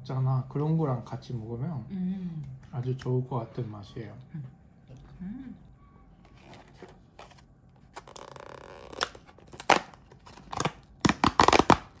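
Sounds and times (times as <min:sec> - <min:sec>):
plastic packaging crinkling: 0:06.3 - 0:12.0
plastic packaging tearing: 0:07.2 - 0:12.0.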